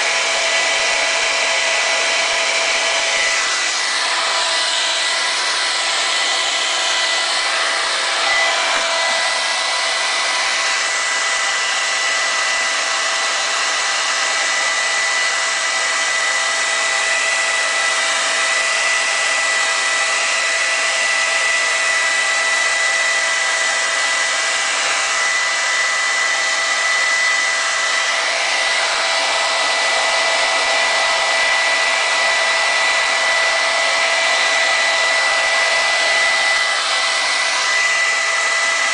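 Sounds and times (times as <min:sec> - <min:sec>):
hair dryer blowing: 0:00.0 - 0:38.9.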